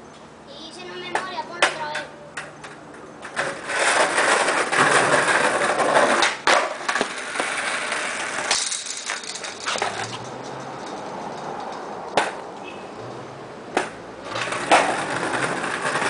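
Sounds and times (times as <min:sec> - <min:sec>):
skateboard wheels rolling on concrete: 0:00.0 - 0:16.0
skateboard clacking: 0:03.3 - 0:12.4, 0:13.7 - 0:16.0.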